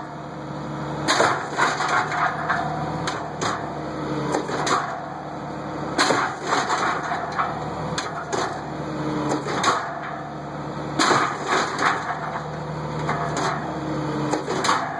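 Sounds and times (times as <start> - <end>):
engine hum: 0.0 - 14.9
machine knocks and clatters: 11.0 - 13.6.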